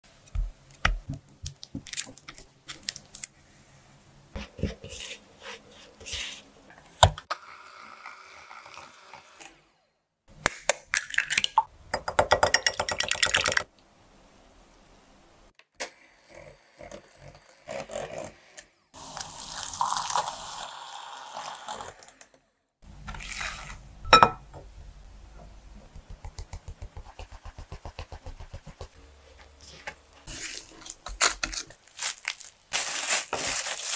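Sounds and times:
clicks and knocks in glass bowl: 0:24.1 - 0:24.5.

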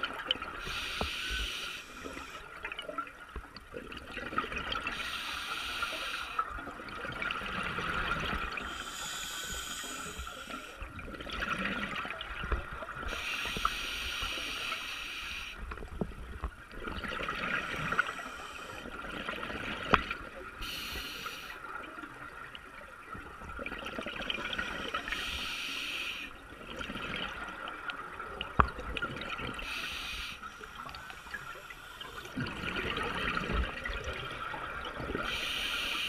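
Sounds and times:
diver breathing through regulator: 0:00.6 - 0:02.4, 0:05.0 - 0:06.4, 0:08.6 - 0:10.8, 0:20.6 - 0:21.6, 0:24.7 - 0:26.3, 0:29.6 - 0:32.4
gurgling bubbles: 0:01.8 - 0:05.0, 0:06.4 - 0:13.2, 0:16.7 - 0:20.8, 0:26.5 - 0:29.8, 0:30.7 - 0:36.0.

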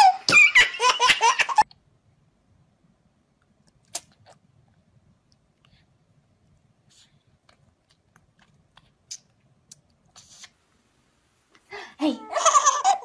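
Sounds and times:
baby laughing: 0:00.0 - 0:01.6, 0:12.1 - 0:13.0.

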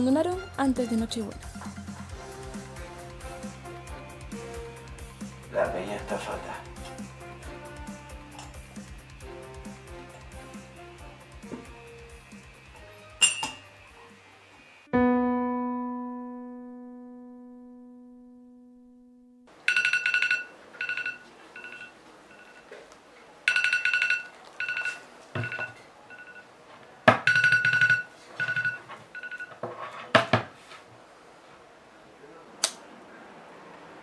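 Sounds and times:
electronic phone ring tone: 0:19.6 - 0:22.7, 0:23.5 - 0:26.5, 0:27.3 - 0:29.6.

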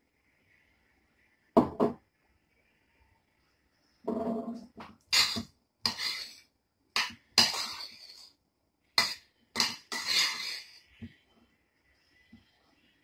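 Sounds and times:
metal spoon scraping frying pan: 0:04.1 - 0:08.3, 0:09.0 - 0:11.0.

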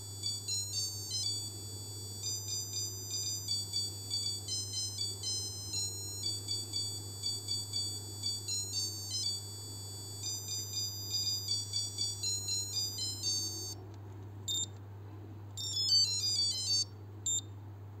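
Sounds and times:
watch alarm beeping melody: 0:00.0 - 0:13.8, 0:15.6 - 0:17.4.

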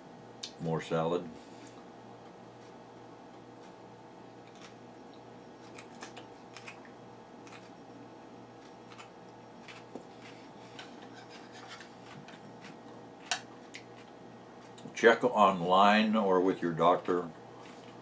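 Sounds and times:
person chewing crunchy salad: 0:04.4 - 0:14.9, 0:17.5 - 0:18.0.

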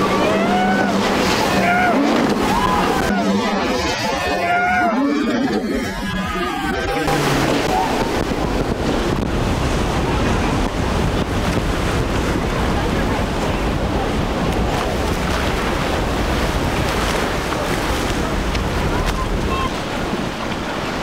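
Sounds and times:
rough water churning: 0:00.0 - 0:21.0
wind noise on microphone: 0:07.0 - 0:21.0.

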